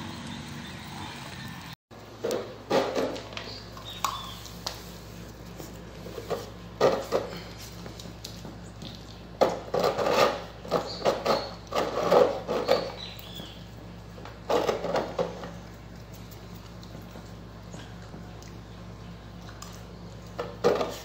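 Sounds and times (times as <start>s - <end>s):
animals scuffling on hard floor: 3.1s - 10.0s.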